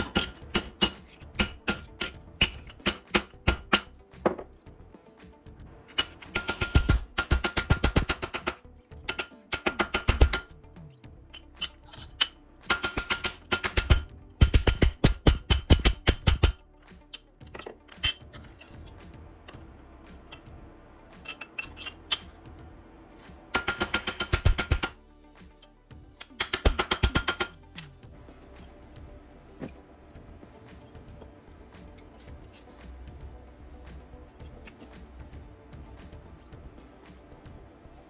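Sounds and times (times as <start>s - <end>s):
hammer striking metal: 0.0s - 4.5s, 5.9s - 10.5s, 11.6s - 16.6s, 23.5s - 25.0s, 26.2s - 28.0s.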